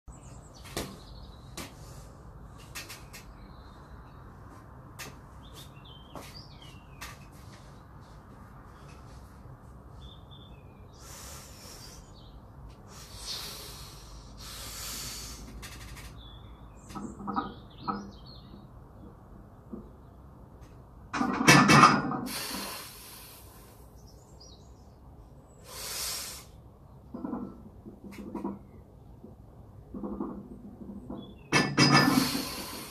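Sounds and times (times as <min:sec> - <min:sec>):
person breathing forcefully: 0:12.9 - 0:15.6.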